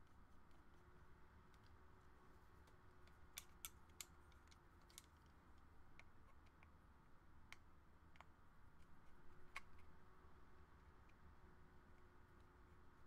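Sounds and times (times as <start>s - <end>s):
small metal screwdriver clicks: 3.1s - 5.1s.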